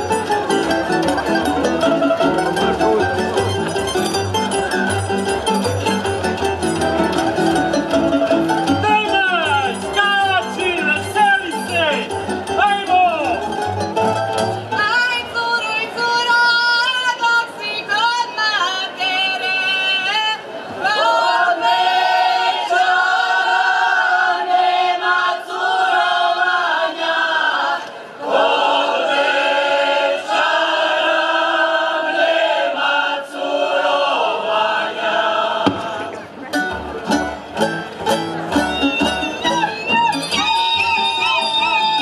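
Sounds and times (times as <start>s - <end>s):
folk string band playing: 0.0s - 16.9s, 33.4s - 42.0s
group of voices singing: 1.6s - 2.9s, 20.8s - 36.3s.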